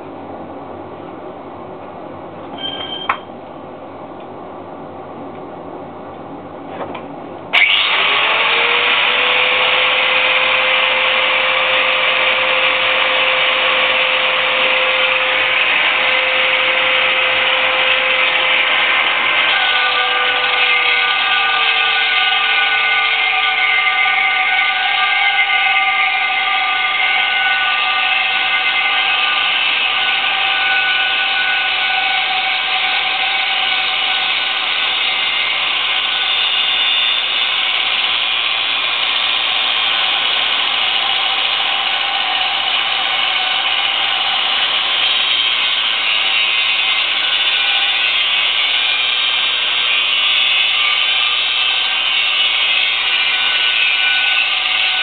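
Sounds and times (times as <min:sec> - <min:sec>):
angle grinder grinding metal: 0:07.5 - 0:55.0.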